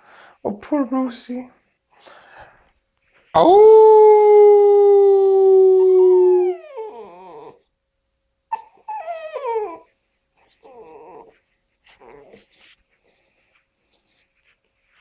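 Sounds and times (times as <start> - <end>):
puppy howling: 3.4 - 7.6, 8.5 - 9.9, 10.6 - 11.4
puppy whimpering: 5.8 - 7.7, 8.5 - 12.9.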